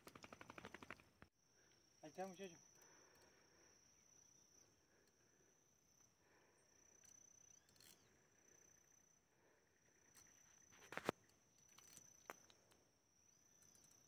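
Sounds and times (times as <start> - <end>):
sharp clicks: 0.0 - 1.3.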